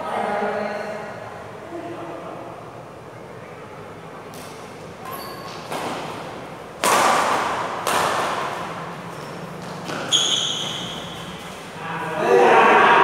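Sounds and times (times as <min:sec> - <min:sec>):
short high squeak: 0:05.0 - 0:05.5, 0:10.1 - 0:11.4
racquet hitting shuttlecock: 0:05.2 - 0:11.7.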